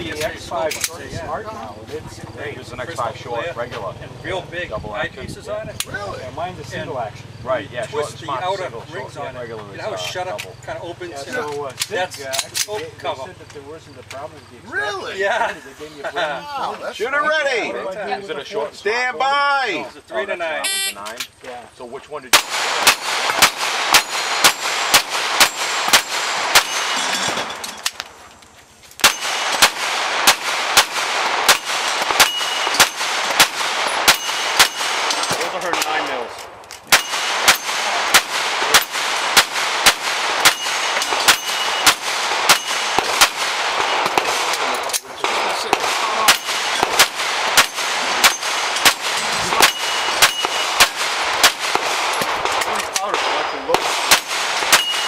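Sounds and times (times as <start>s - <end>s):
pistol shots: 22.3s - 28.2s, 29.0s - 55.0s
steel targets ringing: 22.4s - 27.8s, 29.0s - 36.3s, 36.9s - 44.4s, 46.0s - 51.0s, 54.6s - 55.0s.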